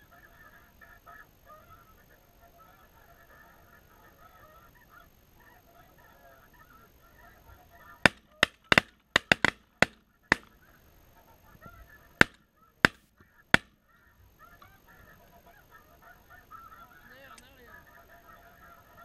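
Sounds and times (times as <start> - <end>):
geese calling: 0.0 - 19.0
shotgun shots: 8.1 - 10.6, 12.2 - 13.8.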